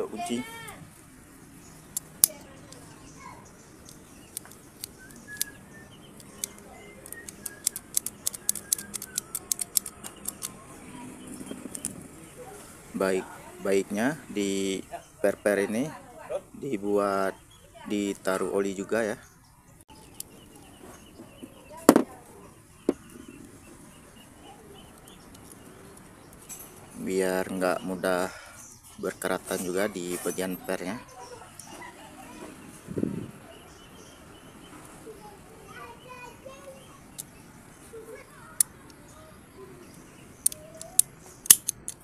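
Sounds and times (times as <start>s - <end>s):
faint bird calls: 19.3s - 41.4s
sharp knocks on plastic tabletop: 21.9s - 22.1s.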